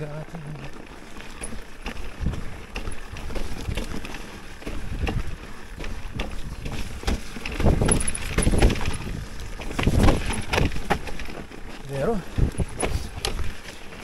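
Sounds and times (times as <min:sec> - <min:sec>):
bike knocks and rattles: 0:00.0 - 0:14.0
bike tyres and frame rumbling: 0:00.0 - 0:14.0
wind buffeting microphone: 0:01.9 - 0:11.0, 0:12.0 - 0:13.7.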